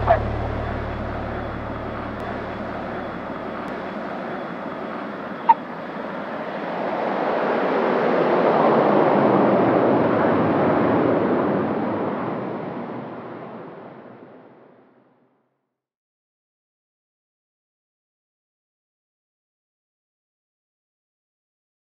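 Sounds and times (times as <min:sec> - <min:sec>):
turboprop aircraft taking off: 0:00.0 - 0:14.7.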